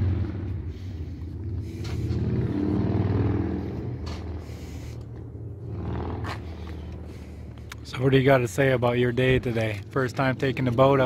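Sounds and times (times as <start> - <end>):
vehicle engine running at low revs: 0.0 - 11.0.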